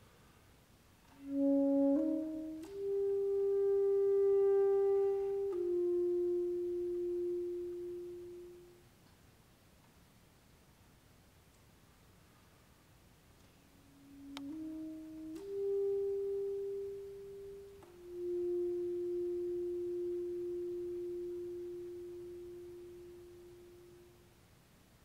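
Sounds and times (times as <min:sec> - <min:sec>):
soft alto saxophone notes: 0:01.0 - 0:09.0, 0:13.4 - 0:24.4.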